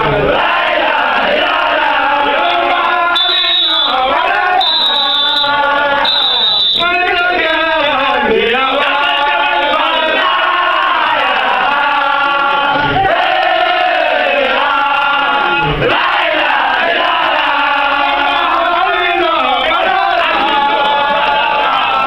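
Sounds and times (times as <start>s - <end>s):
men chanting together: 0.0s - 22.0s
high whistle-like tones: 3.1s - 7.0s.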